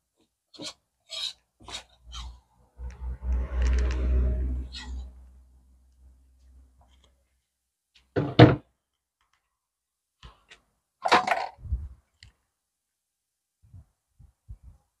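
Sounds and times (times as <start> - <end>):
knocks and thuds: 8.2 - 8.7.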